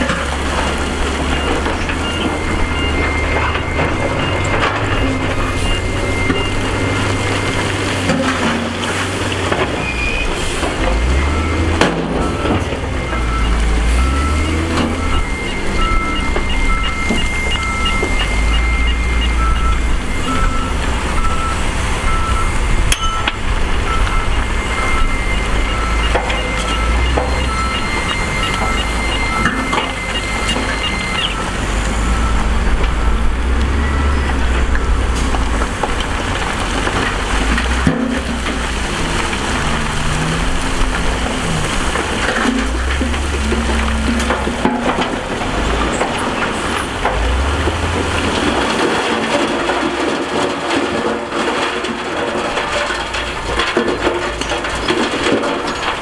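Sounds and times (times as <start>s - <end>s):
dump truck diesel engines: 0.0s - 56.0s
warning beeps: 0.7s - 8.0s, 9.8s - 35.2s, 38.2s - 46.8s
rock being dumped: 31.7s - 56.0s.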